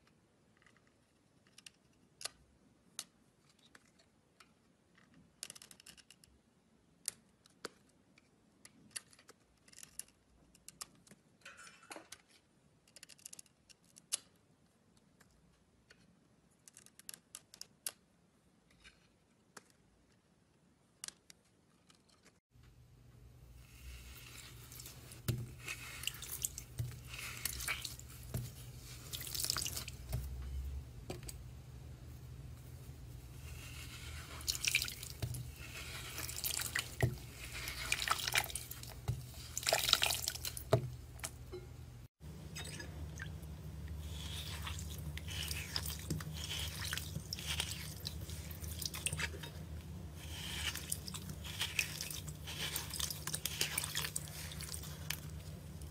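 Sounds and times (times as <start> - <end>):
water sloshing and dripping: 23.9 - 31.3, 33.5 - 41.4, 42.3 - 49.7, 50.6 - 55.9.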